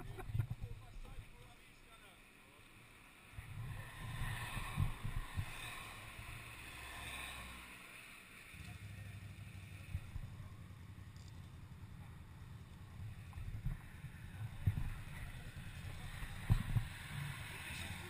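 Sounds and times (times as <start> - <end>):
quad bike engine idling: 8.6 - 16.8.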